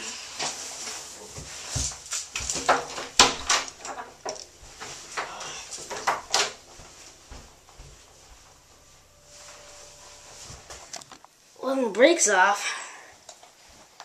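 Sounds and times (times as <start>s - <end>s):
footsteps: 0.2s - 11.4s
knocks and rustles: 0.4s - 11.4s
door unlatching and opening: 2.3s - 6.7s.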